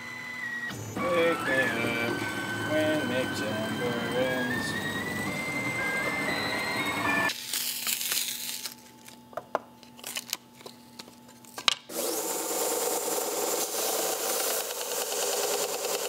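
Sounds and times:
cnc router motors whining: 0:00.0 - 0:07.3, 0:11.9 - 0:16.0
belt sander running: 0:00.0 - 0:07.4, 0:11.9 - 0:16.0.

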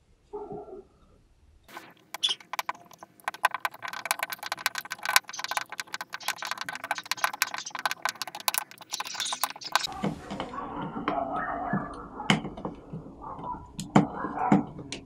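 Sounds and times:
screw clicking and creaking: 0:02.0 - 0:09.9.

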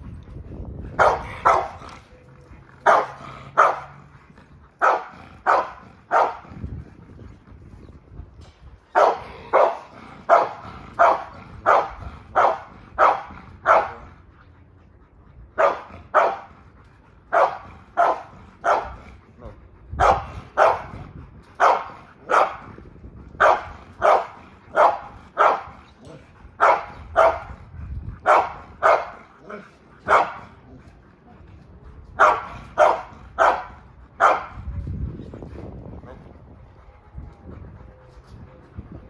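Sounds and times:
dog barking: 0:01.0 - 0:01.8, 0:02.8 - 0:03.9, 0:04.8 - 0:06.4, 0:09.0 - 0:14.0, 0:15.6 - 0:16.5, 0:17.3 - 0:19.0, 0:20.0 - 0:21.0, 0:21.6 - 0:22.6, 0:23.4 - 0:25.7, 0:26.6 - 0:27.5, 0:28.2 - 0:29.2, 0:30.1 - 0:30.4, 0:32.2 - 0:34.6.

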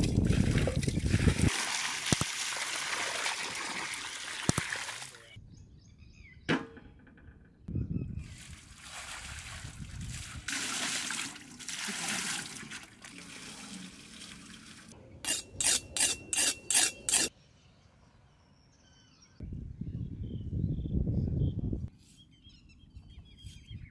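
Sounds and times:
water splashing into metal basin: 0:00.0 - 0:05.2, 0:08.4 - 0:14.9
knife sharpened on stone: 0:15.3 - 0:17.3.

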